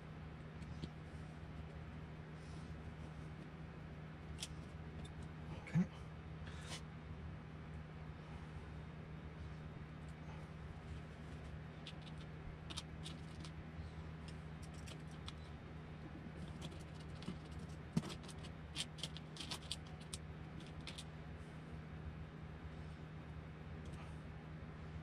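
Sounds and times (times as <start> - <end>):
steady low hum: 0.0 - 25.0
clicks of plastic parts handled: 16.4 - 21.1.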